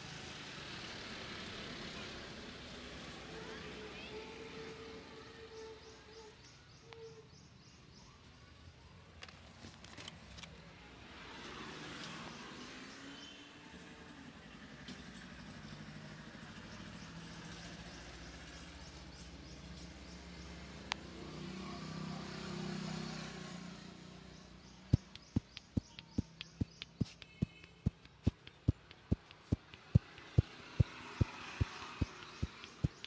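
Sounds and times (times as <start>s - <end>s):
road traffic rumble: 0.0s - 6.5s, 9.7s - 33.0s
hands slapping a head: 25.0s - 33.0s.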